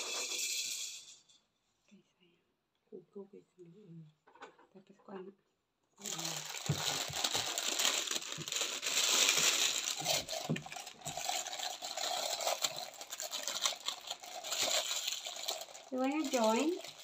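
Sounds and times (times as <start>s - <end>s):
plastic bags rustling: 6.0s - 17.0s.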